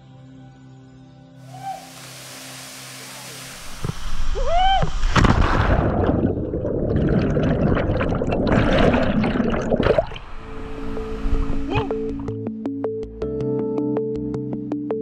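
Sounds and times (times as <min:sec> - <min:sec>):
background music: 0:00.0 - 0:06.2, 0:07.2 - 0:15.0
person crying out: 0:01.5 - 0:01.9, 0:04.4 - 0:04.9
loud splash into water: 0:04.9 - 0:07.2
underwater bubbles gurgling: 0:05.4 - 0:10.4.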